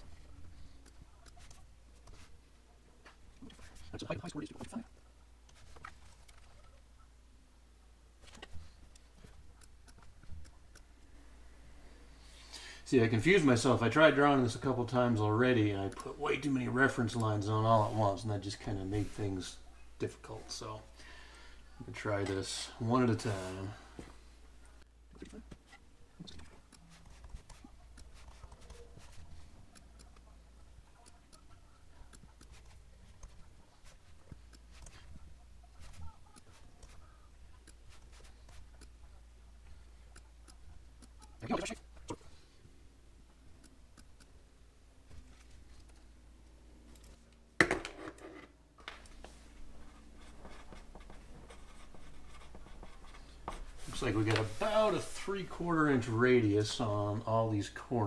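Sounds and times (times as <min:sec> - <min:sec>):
pencil scratching on paper: 0:01.2 - 0:02.4, 0:26.4 - 0:30.3, 0:31.0 - 0:38.9, 0:49.8 - 0:55.2.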